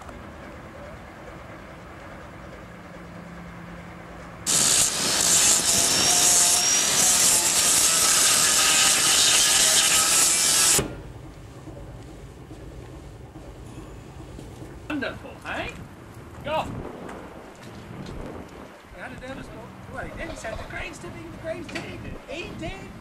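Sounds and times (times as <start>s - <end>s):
power tool running on hull: 4.5s - 11.0s.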